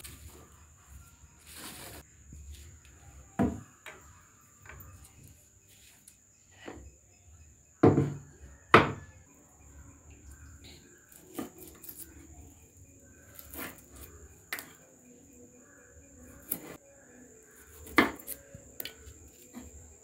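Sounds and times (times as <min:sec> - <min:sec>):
knocks on a wooden table: 0:07.8 - 0:09.0.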